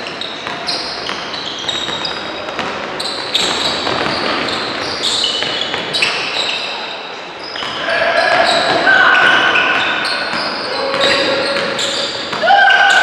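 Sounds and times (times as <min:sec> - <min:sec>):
sneakers squeaking on court: 0:00.0 - 0:13.0
basketball bouncing: 0:00.4 - 0:06.0.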